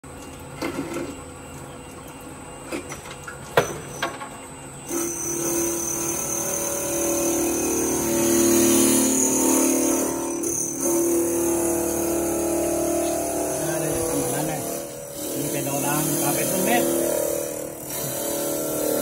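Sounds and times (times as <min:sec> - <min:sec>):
drilling machine motor humming: 0:04.9 - 0:19.0.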